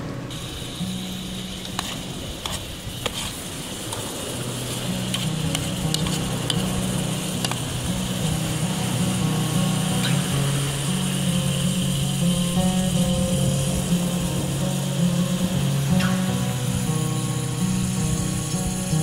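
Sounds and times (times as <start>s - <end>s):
food simmering and sizzling: 0.0s - 19.0s
background music: 4.7s - 19.0s.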